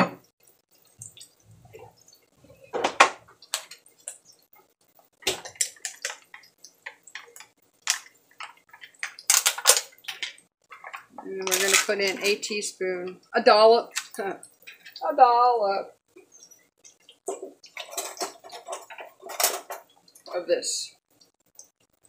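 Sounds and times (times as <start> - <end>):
dishes clattering: 0.0 - 0.3, 1.7 - 3.8, 5.2 - 12.4, 17.2 - 20.1
dishes and utensils clinking: 5.3 - 12.4, 17.2 - 20.2.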